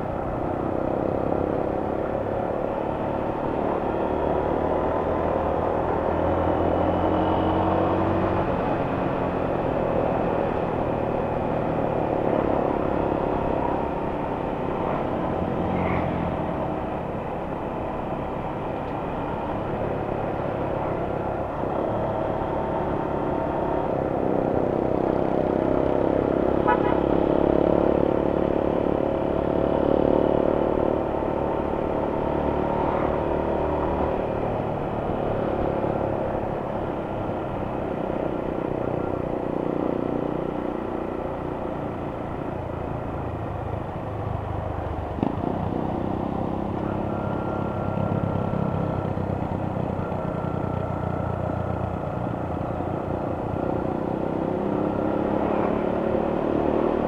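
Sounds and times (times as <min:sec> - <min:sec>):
motorcycle engine: 0:19.5 - 0:57.0.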